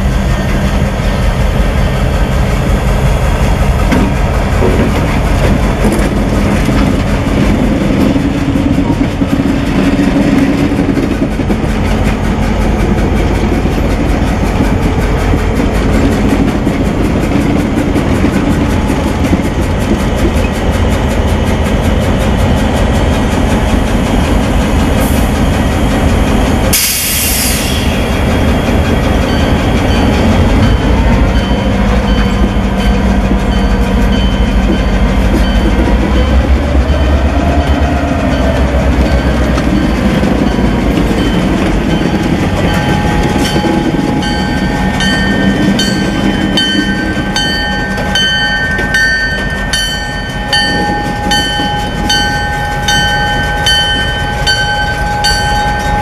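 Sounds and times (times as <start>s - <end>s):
diesel locomotive engines throbbing: 0.0s - 56.0s
locomotive bell ringing: 27.9s - 56.0s.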